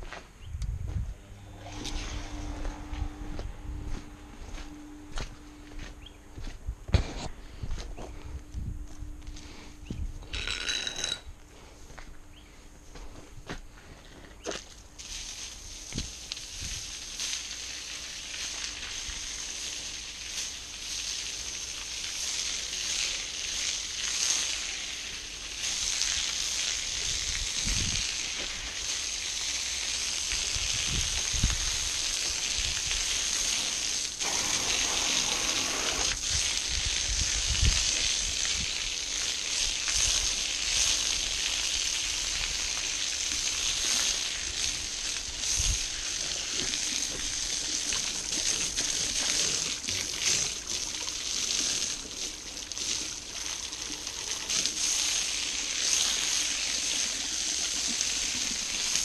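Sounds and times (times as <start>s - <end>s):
water spraying onto asphalt: 14.9s - 59.0s.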